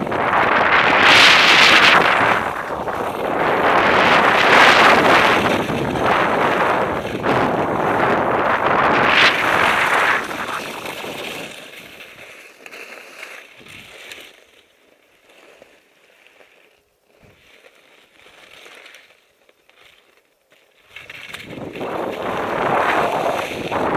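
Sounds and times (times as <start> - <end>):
wind rushing over microphone: 0.0 - 12.0, 21.3 - 23.9
skis and boots crunching snow: 0.0 - 23.9
skis hissing over snow: 0.0 - 23.9.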